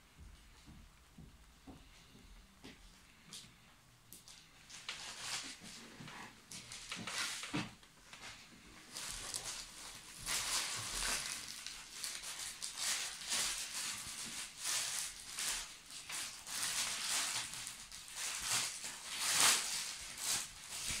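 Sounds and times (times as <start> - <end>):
plastic bags crinkling: 4.3 - 5.8, 8.2 - 21.0.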